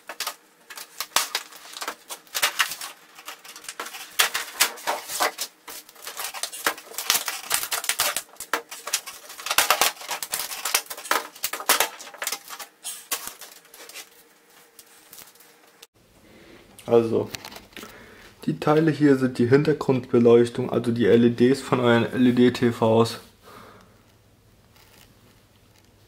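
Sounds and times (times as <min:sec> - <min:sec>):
plastic sheets crackling: 0:00.0 - 0:15.7.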